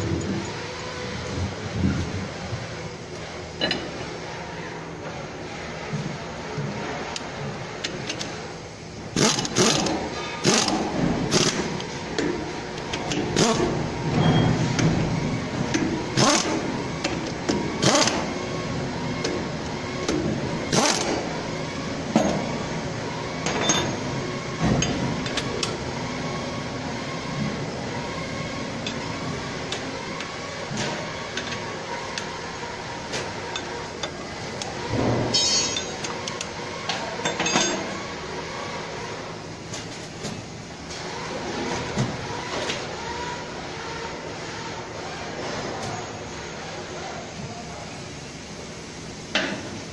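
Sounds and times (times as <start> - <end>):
steady background hum: 0.0 - 49.9
hand tools clinking on steel: 23.5 - 24.0, 35.3 - 36.4, 37.2 - 38.0.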